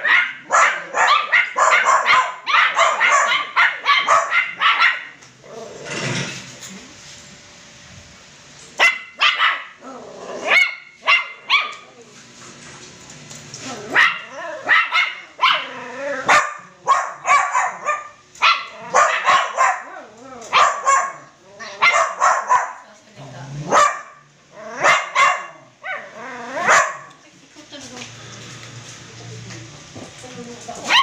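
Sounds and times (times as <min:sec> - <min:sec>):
puppies barking and yipping: 0:00.0 - 0:05.2, 0:08.8 - 0:09.8, 0:10.4 - 0:12.0, 0:13.5 - 0:22.8.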